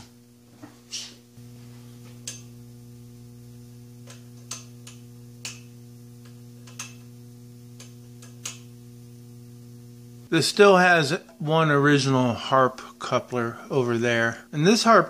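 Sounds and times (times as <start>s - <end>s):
low electrical hum: 0.0s - 15.0s
rotary switch clicks: 4.0s - 8.8s
person speaking: 10.3s - 15.0s.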